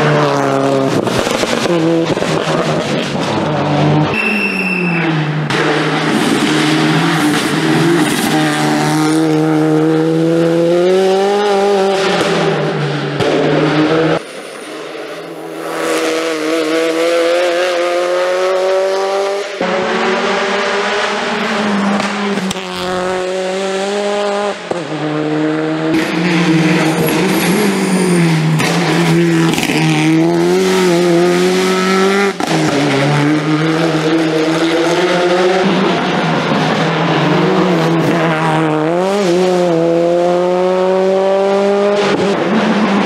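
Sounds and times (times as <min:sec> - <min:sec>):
race car engine at full throttle: 0:00.0 - 0:43.0
tyre squeal: 0:04.1 - 0:05.2, 0:26.8 - 0:28.8.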